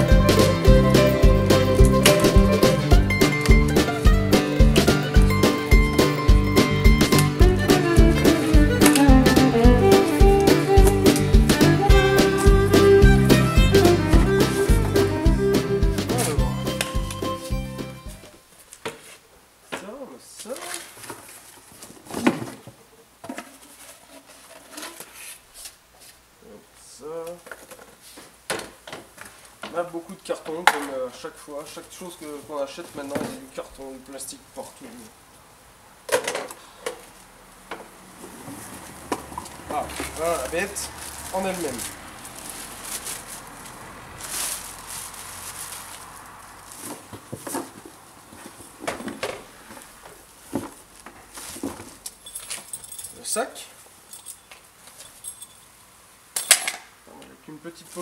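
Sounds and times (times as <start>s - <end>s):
cardboard and packaging rustling: 18.2s - 26.2s, 27.2s - 34.2s, 38.2s - 53.3s, 57.7s - 58.0s.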